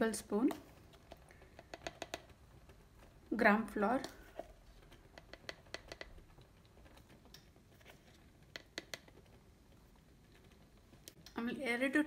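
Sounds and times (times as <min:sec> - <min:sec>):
plastic spoon clicking on container: 0:01.5 - 0:02.4, 0:05.1 - 0:06.2, 0:08.5 - 0:09.2.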